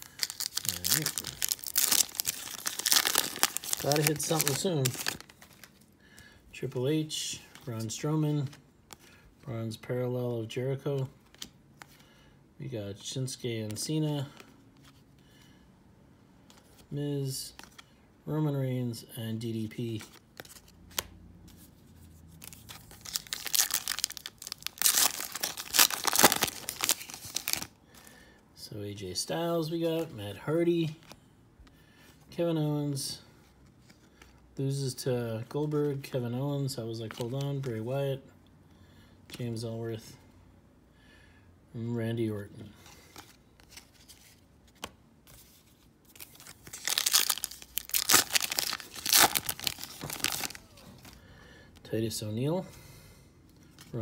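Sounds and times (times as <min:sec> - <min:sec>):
card pack wrapper crinkling: 0:00.0 - 0:05.8, 0:22.4 - 0:27.7, 0:46.1 - 0:51.2.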